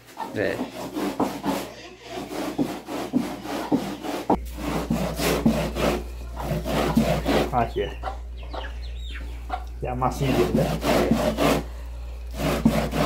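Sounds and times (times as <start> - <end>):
corn rasping on metal grater: 0.3 - 7.8, 10.1 - 11.7, 12.3 - 13.0.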